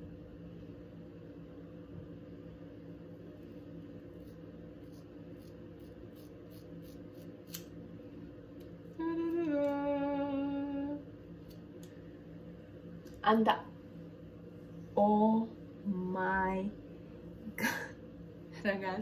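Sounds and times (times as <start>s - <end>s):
scissors snipping hair: 4.2s - 7.7s, 11.4s - 11.9s
woman humming: 8.9s - 11.1s.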